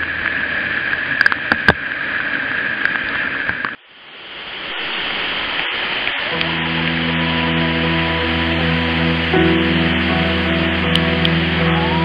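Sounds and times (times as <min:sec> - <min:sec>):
waterfall rushing: 0:04.0 - 0:12.0.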